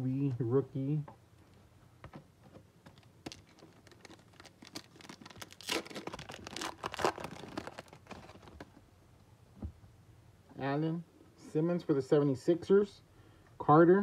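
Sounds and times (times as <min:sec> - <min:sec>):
wrapper crinkling: 0:02.9 - 0:08.8.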